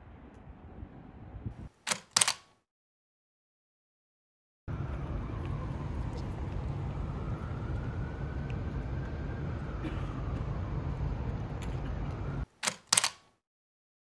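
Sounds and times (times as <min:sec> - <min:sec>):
city background rumble: 0:00.0 - 0:01.7, 0:04.7 - 0:13.0
camera shutter clicks: 0:01.8 - 0:02.6, 0:12.6 - 0:13.3.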